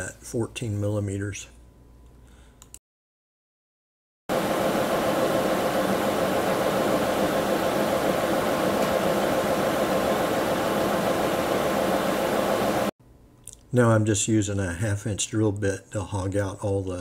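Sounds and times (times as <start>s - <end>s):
milling machine whirring: 4.3s - 12.9s
faint hum: 4.3s - 15.1s.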